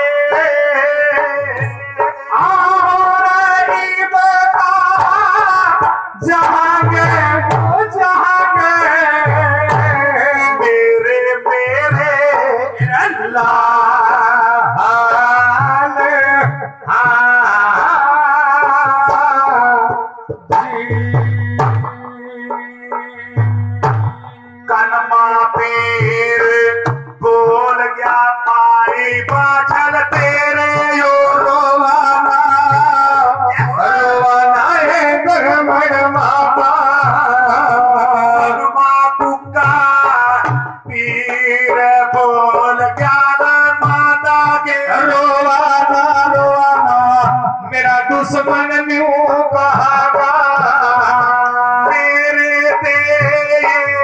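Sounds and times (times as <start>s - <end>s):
person singing: 0.0s - 54.0s
low drum beat: 4.9s - 27.8s.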